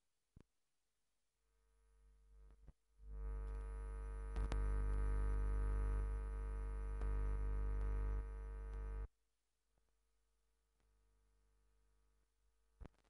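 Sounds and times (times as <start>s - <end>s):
faint clicks: 4.3s - 5.1s.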